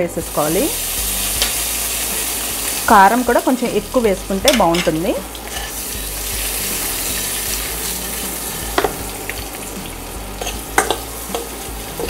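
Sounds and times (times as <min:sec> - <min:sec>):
oil sizzling in a pan: 0:00.0 - 0:12.0
utensil clicking against steel pan: 0:10.4 - 0:11.6.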